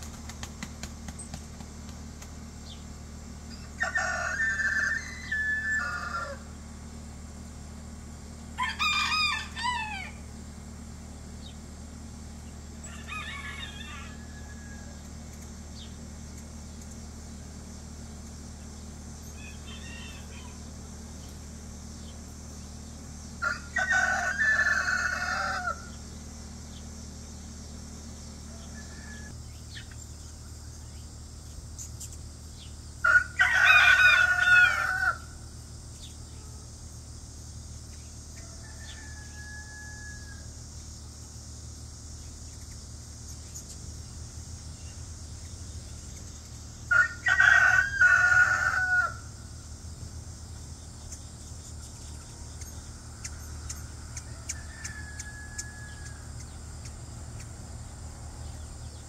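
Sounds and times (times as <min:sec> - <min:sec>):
rooster crowing: 0:03.5 - 0:06.6, 0:08.6 - 0:10.3, 0:12.8 - 0:15.2, 0:19.2 - 0:20.8, 0:23.4 - 0:26.1, 0:28.4 - 0:29.4, 0:33.0 - 0:35.4, 0:38.3 - 0:40.6, 0:46.9 - 0:49.5, 0:53.2 - 0:56.4.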